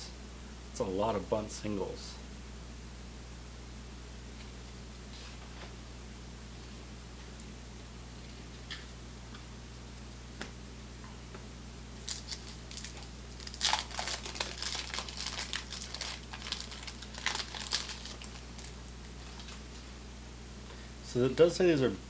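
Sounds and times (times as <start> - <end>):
paper wrapper tearing and crinkling: 12.0 - 19.6.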